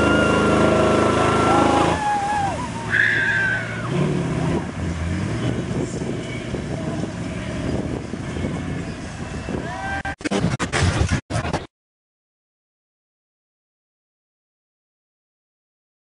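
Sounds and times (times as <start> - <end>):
pickup truck engine driving: 0.0 - 9.7.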